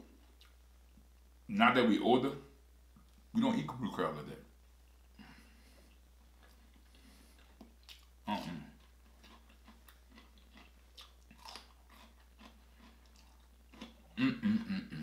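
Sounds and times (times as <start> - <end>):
chewing and biting food: 6.4 - 14.2.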